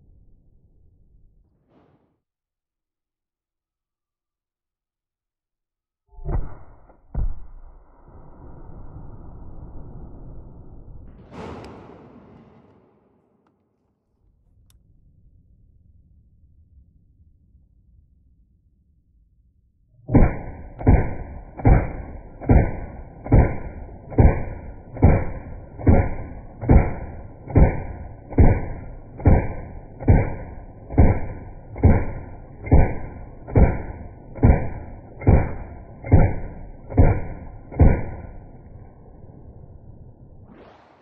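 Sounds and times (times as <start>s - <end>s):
slowed rifle shots booming: 6.1s - 8.5s, 10.7s - 13.6s, 20.0s - 41.0s.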